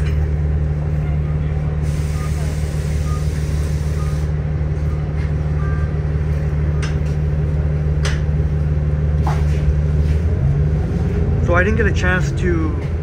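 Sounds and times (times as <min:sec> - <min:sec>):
bus engine drone: 0:00.0 - 0:13.0
rattles and clicks in cabin: 0:04.8 - 0:09.8.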